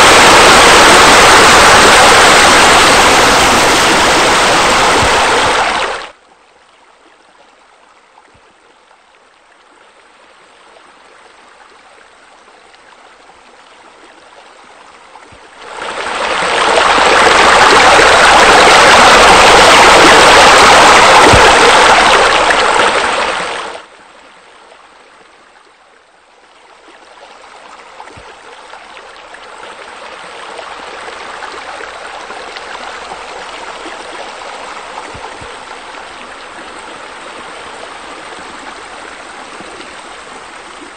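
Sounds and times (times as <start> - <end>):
water splashing into pool: 0.0 - 6.2, 15.5 - 23.9.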